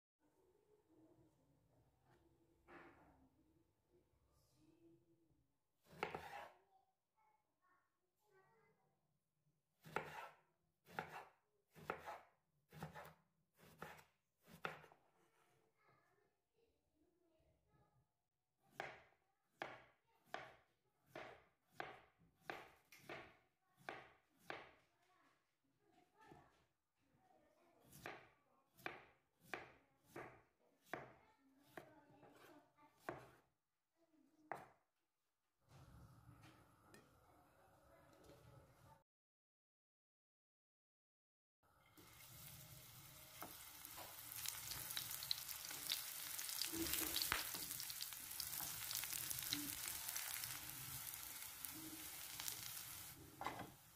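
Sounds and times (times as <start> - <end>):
knife cutting on a cutting board: 5.8 - 6.6, 9.8 - 15.6, 27.8 - 33.4
knife cutting on cutting board: 5.8 - 6.6, 9.8 - 15.0.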